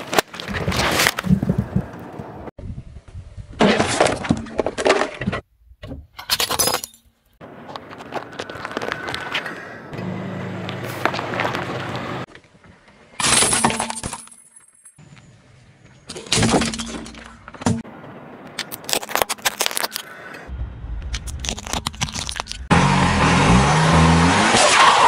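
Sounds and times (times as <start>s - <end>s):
low car engine hum: 7.4s - 13.0s, 20.4s - 24.5s
plastic cracking and crunching: 18.6s - 20.1s, 21.1s - 22.7s.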